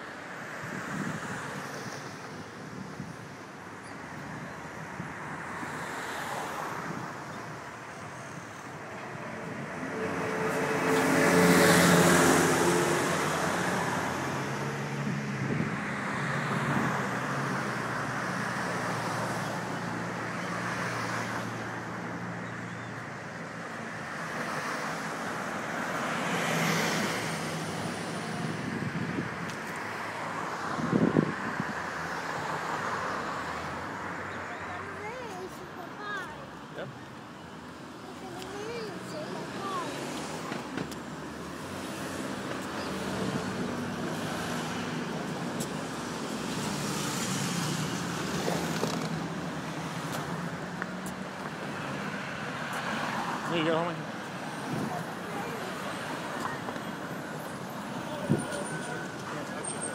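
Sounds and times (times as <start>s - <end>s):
road traffic passing: 0.0s - 59.9s
vehicle engine hum passing: 9.0s - 21.6s.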